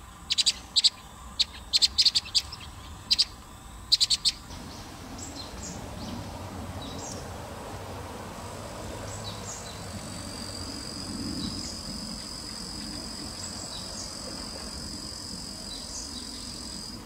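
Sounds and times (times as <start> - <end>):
high-pitched insect drone: 8.5 - 17.0.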